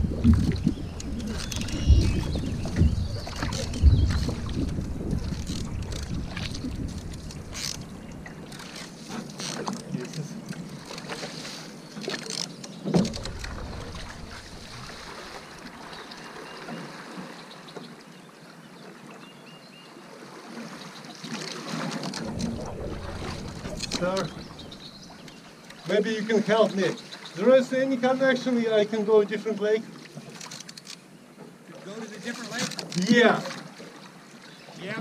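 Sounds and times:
wind on microphone: 0.0s - 8.5s, 13.0s - 15.8s, 22.2s - 25.2s
paddle strokes splashing water: 0.0s - 35.0s.

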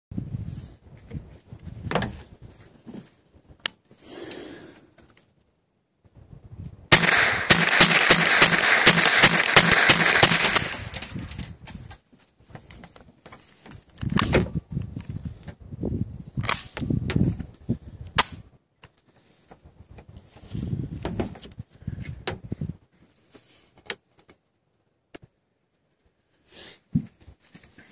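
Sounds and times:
rifle shots in rapid string: 6.9s - 11.3s
sharp clicks: 6.9s - 11.5s.

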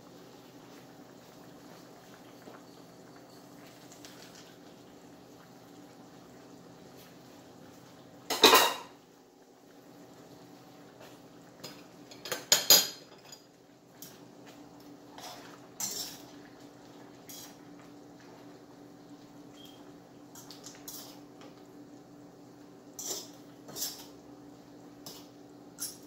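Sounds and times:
utensil clanking and scraping in wok: 15.1s - 16.4s, 17.2s - 17.6s, 20.3s - 21.2s, 23.0s - 24.2s, 25.0s - 26.0s.

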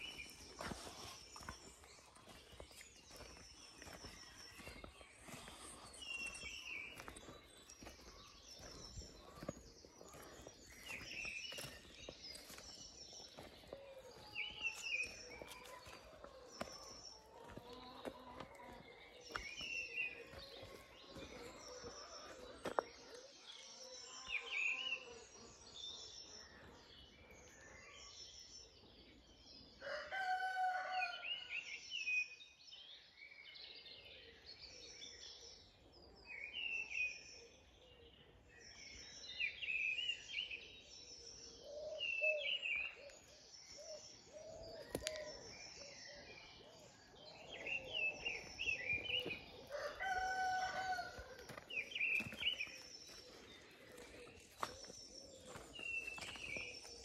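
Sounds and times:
songbirds singing: 0.0s - 57.0s
rooster crowing: 49.7s - 51.5s.

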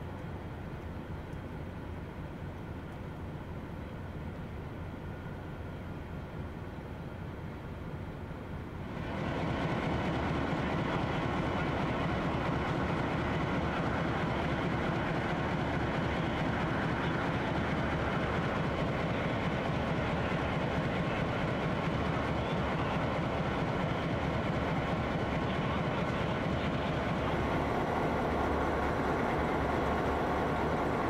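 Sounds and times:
diesel locomotives idling: 0.0s - 31.0s.

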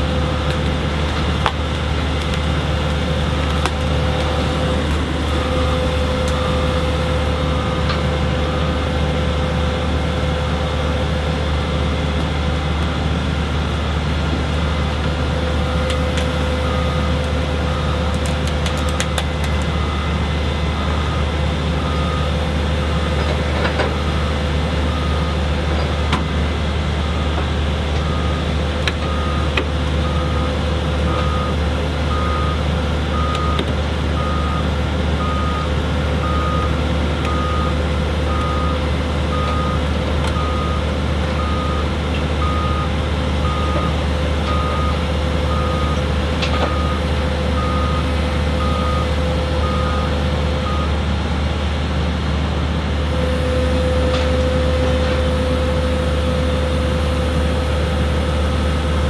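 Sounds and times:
heavy machinery whine: 0.0s - 59.0s
low engine hum: 0.0s - 59.0s
reversing alarm beeping: 4.3s - 8.8s, 15.6s - 18.1s, 19.7s - 25.4s, 28.0s - 33.6s, 34.2s - 46.0s, 46.6s - 51.0s.

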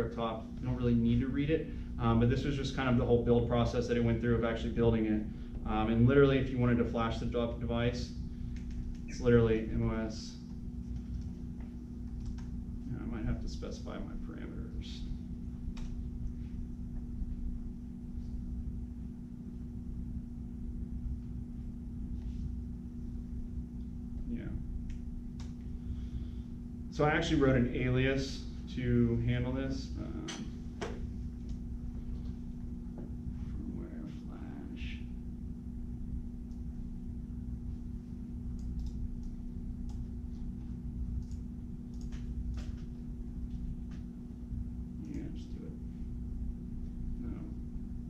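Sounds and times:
low room hum: 0.0s - 48.0s
laptop keyboard typing clicks: 12.1s - 12.5s, 38.6s - 40.0s.

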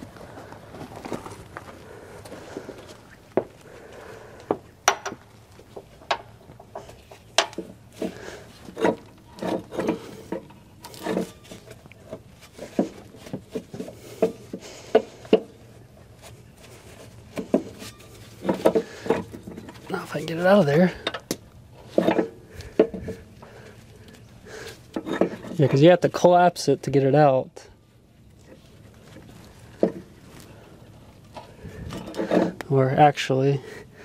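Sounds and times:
metal scraping: 6.0s - 15.3s, 16.6s - 21.0s.

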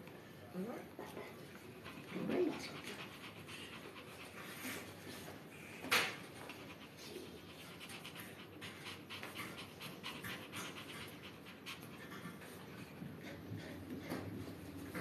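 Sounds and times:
small dog panting rapidly: 1.4s - 15.0s.

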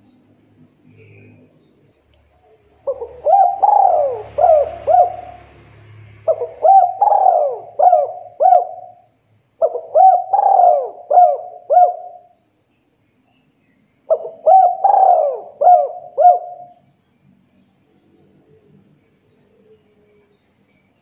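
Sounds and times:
dove cooing: 2.5s - 12.4s, 14.1s - 16.8s.

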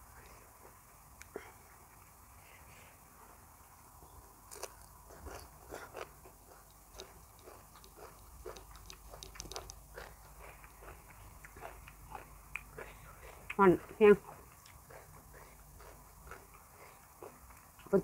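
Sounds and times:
crunchy lettuce chewing: 4.2s - 18.0s
wet mouth clicks: 5.3s - 12.8s.

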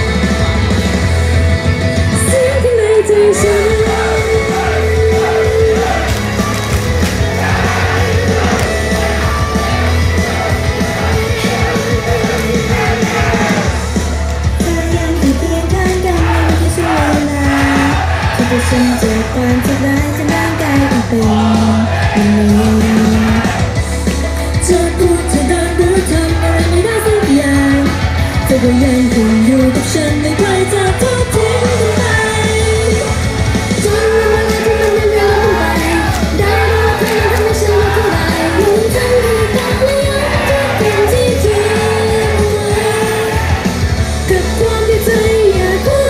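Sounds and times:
pop accompaniment with heavy bass: 0.0s - 46.0s
female group singing: 2.2s - 6.5s, 14.6s - 23.6s, 33.8s - 46.0s.

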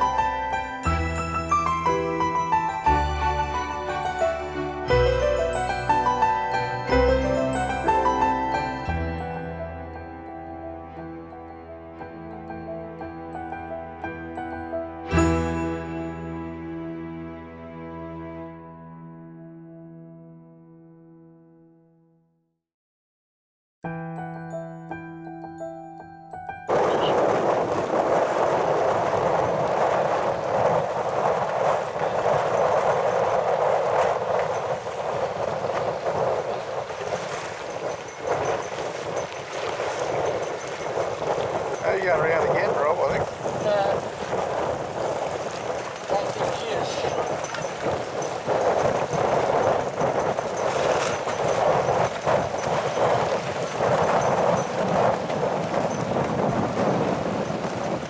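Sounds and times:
water noise from moving boat: 0.0s - 17.3s, 26.5s - 58.0s
wind on microphone: 26.7s - 58.0s.

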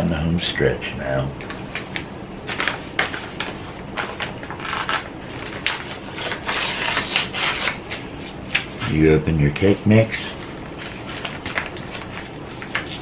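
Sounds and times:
bag crinkling and rustling: 1.7s - 8.9s, 10.3s - 13.0s.

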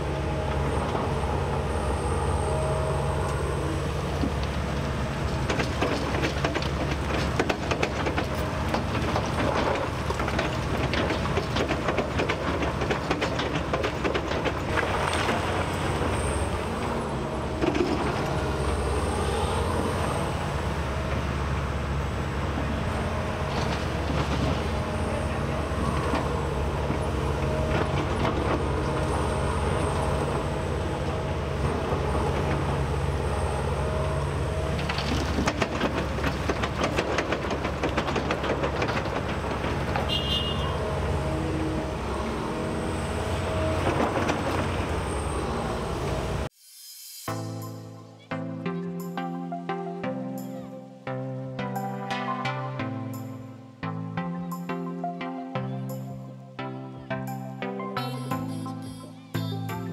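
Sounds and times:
excavator diesel engine running: 0.0s - 46.5s
metallic clanks and rattles: 4.3s - 18.4s, 34.8s - 40.1s.

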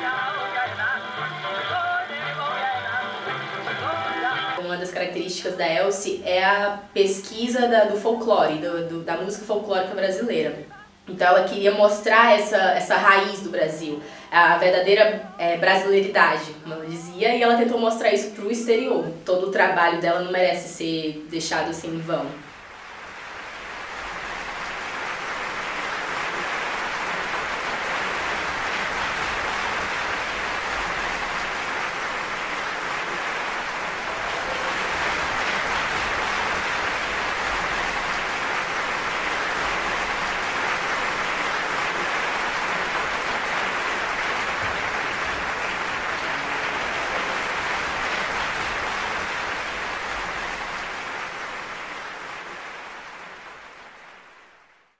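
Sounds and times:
audience applauding: 0.0s - 5.1s, 5.9s - 18.3s, 21.7s - 54.9s.

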